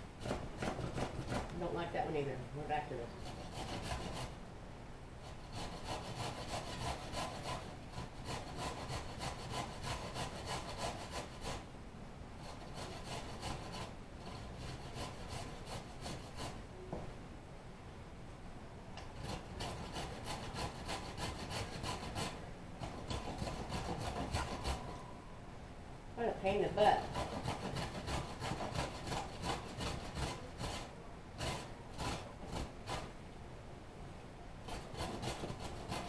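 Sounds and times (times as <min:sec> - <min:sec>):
vegetables rasping on a grater: 0:26.9 - 0:33.1, 0:34.7 - 0:36.0.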